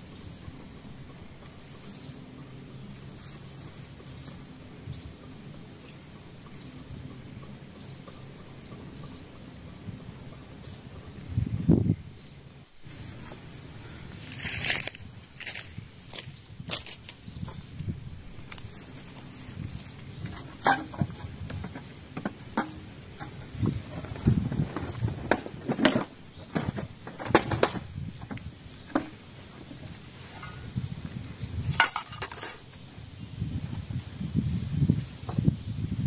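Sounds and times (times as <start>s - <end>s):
footsteps on dry leaves: 12.8s - 19.7s
camping gear rustling and clinking: 14.1s - 32.8s.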